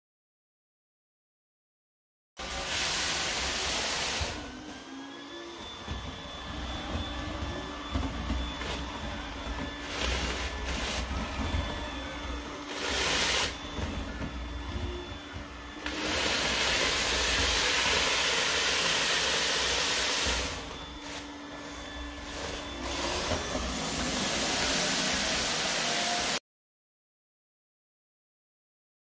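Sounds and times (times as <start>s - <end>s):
robot vacuum motor hum: 2.4s - 26.4s
vacuum sucking up rice: 6.2s - 26.4s.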